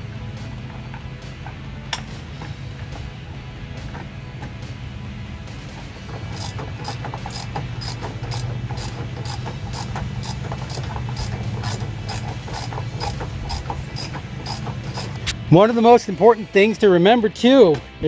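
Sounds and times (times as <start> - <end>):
socket ratchet clicking: 6.2 - 15.4.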